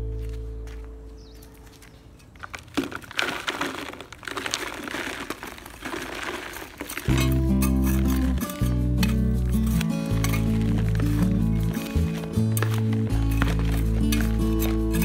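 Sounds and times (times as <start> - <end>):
crinkling and rustling handling noise: 0.0 - 15.0
background music: 7.1 - 15.0.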